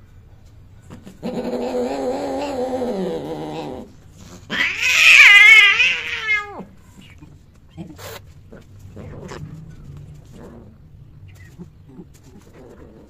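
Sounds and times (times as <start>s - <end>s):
cat screaming high-pitched: 4.5s - 6.6s.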